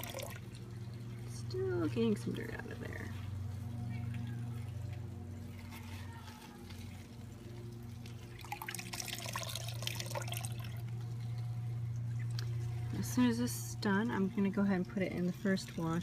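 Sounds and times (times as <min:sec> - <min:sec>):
steady low hum: 0:00.0 - 0:16.0
water sloshing and dripping: 0:00.0 - 0:16.0
water streaming off bag: 0:04.4 - 0:16.0.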